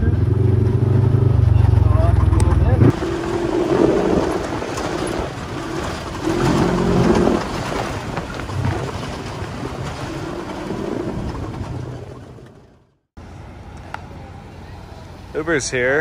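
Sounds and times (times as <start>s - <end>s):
off-road vehicle engine drone: 0.0s - 16.0s
wind noise on microphone: 2.6s - 12.3s.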